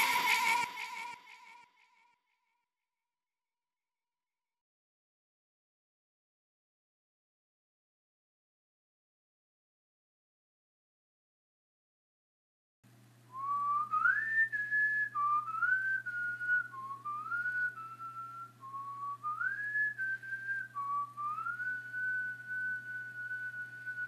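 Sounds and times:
person whistling a slow tune: 0:00.0 - 0:01.7, 0:13.3 - 0:24.0.

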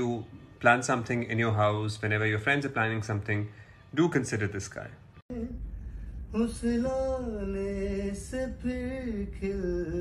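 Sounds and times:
singer breathing: 0:05.6 - 0:06.4.

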